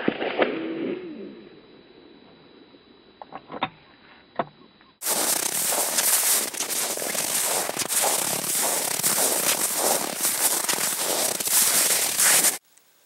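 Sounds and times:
footsteps crunching in snow: 0:05.0 - 0:12.6.

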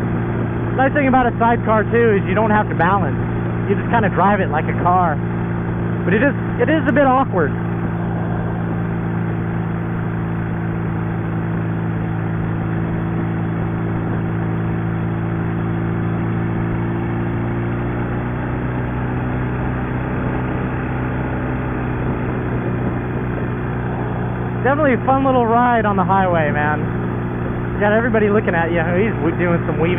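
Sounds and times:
motorcycle engine cruising: 0:00.0 - 0:29.9
wind rushing: 0:07.5 - 0:11.7.

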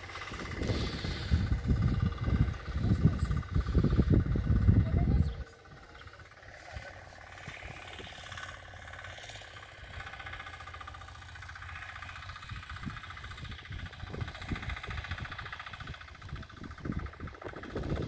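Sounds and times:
distant tractor engine running: 0:00.0 - 0:18.0
low rumbles: 0:00.0 - 0:18.0.

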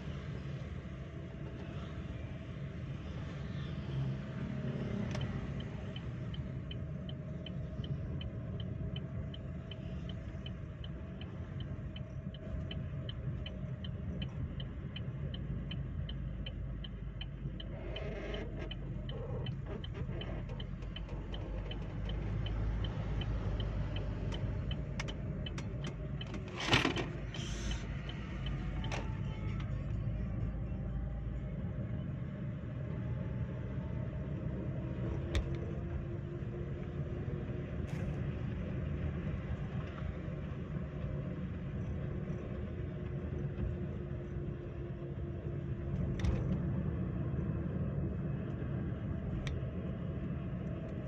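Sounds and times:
car road and engine rumble: 0:00.0 - 0:51.0
light ticking: 0:05.1 - 0:26.4.

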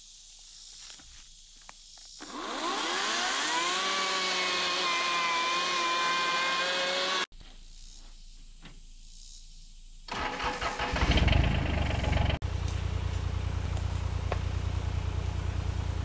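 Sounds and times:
electric chainsaw cutting log: 0:02.2 - 0:07.3.

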